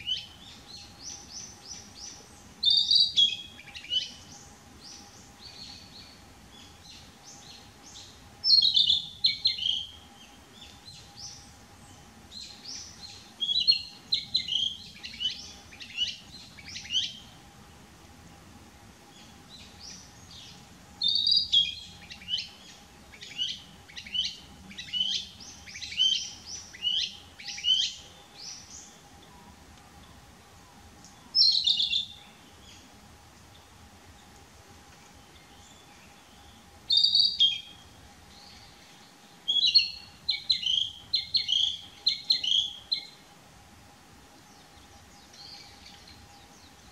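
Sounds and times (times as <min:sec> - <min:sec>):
bird singing high whistled phrases: 0:02.6 - 0:04.3, 0:08.4 - 0:10.0, 0:21.0 - 0:22.6, 0:23.2 - 0:28.8, 0:31.4 - 0:32.4, 0:36.9 - 0:37.8, 0:39.4 - 0:43.2.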